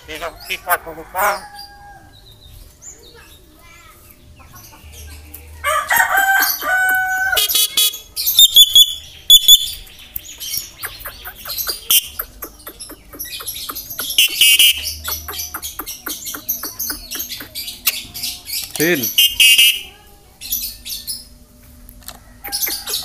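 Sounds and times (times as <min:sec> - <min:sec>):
bird high chirps: 0:06.2 - 0:21.4, 0:22.4 - 0:23.0
bird harsh squawk: 0:10.7 - 0:18.0, 0:19.0 - 0:20.0, 0:22.4 - 0:23.0
myna whistled notes: 0:14.0 - 0:15.0.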